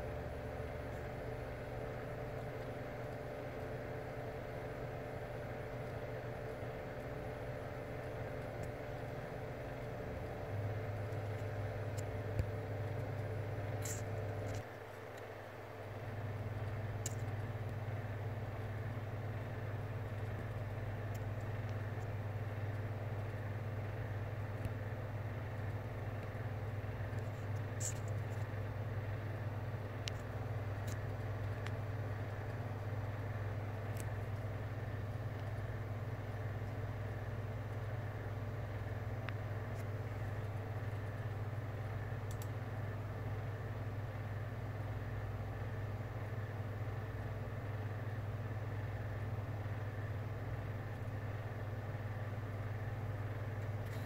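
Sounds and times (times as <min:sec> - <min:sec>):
low mechanical hum: 0:00.0 - 0:54.0
faint clicks: 0:30.0 - 0:31.8, 0:42.2 - 0:42.6.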